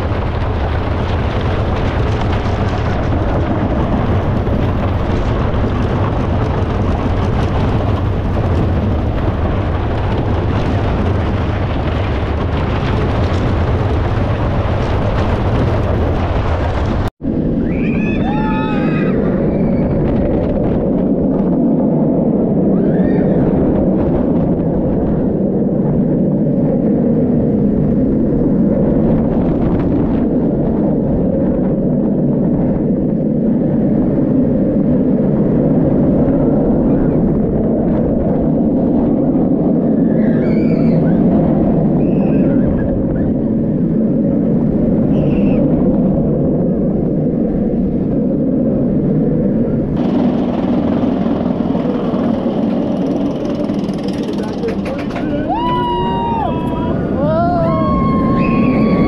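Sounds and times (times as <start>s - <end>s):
wheels rumbling on track: 0.0s - 59.0s
wind noise on microphone: 0.0s - 59.0s
riders screaming: 17.6s - 20.0s, 22.7s - 23.6s, 40.1s - 41.2s, 54.1s - 59.0s.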